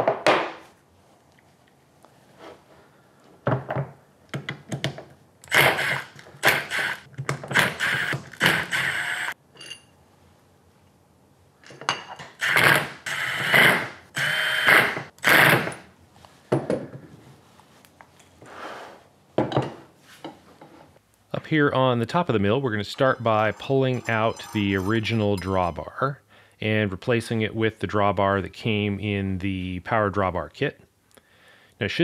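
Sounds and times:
cordless driver running: 0:05.4 - 0:09.4, 0:12.4 - 0:15.7.

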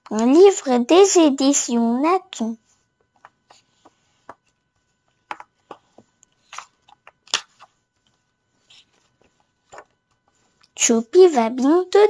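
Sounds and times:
book pages turning: 0:03.0 - 0:10.6.

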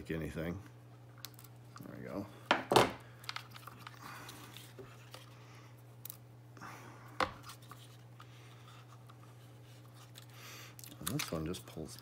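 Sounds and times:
plastic connectors scratching and rustling: 0:07.4 - 0:12.0.

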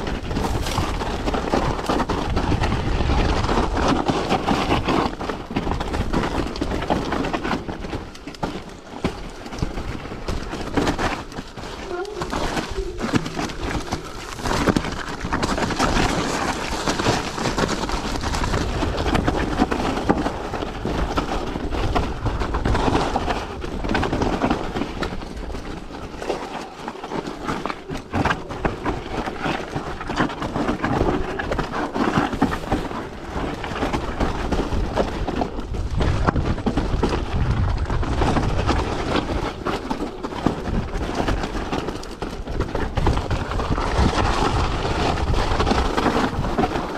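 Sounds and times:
wind on microphone: 0:00.0 - 0:06.9, 0:27.5 - 0:46.9
tyres crunching over rock: 0:00.0 - 0:46.9.

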